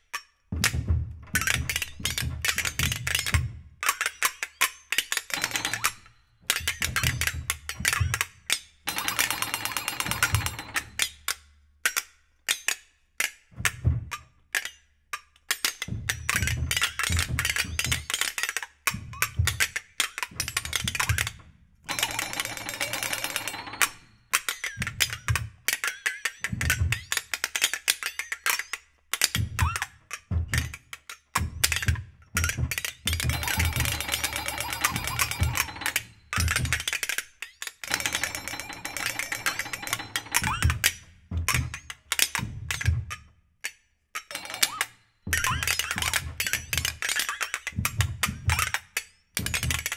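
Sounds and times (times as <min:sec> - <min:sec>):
rapid clattering strikes: 0:21.9 - 0:24.2, 0:33.3 - 0:36.9, 0:37.9 - 0:41.0.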